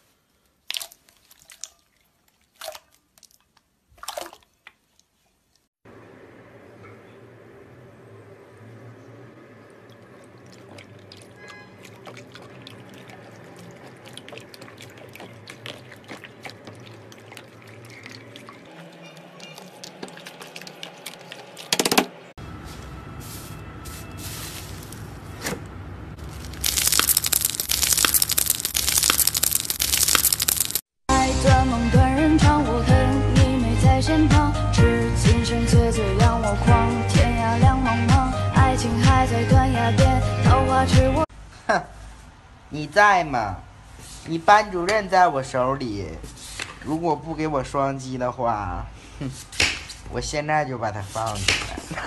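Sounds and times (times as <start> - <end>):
slime crackling and squelching: 10.6 - 18.4, 26.2 - 30.9
slime popping: 26.2 - 30.8.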